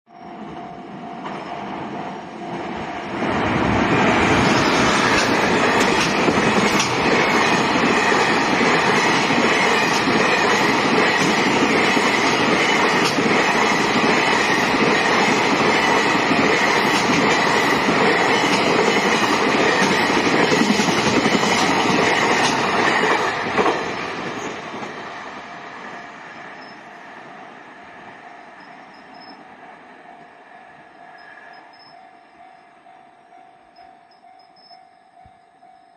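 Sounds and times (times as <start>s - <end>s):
crossing warning bell ringing: 0.1s - 22.4s, 25.8s - 27.0s, 27.8s - 35.9s
train wheels clattering over rails: 3.2s - 25.3s.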